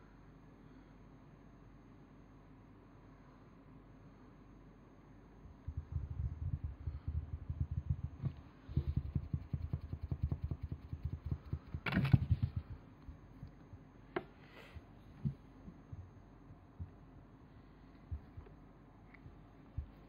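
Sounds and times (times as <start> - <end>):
fingers scratching on carpet: 7.3 - 12.8.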